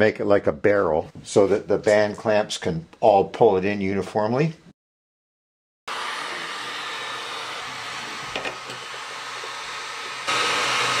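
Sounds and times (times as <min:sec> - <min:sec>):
heat gun blowing air: 0:05.9 - 0:11.0.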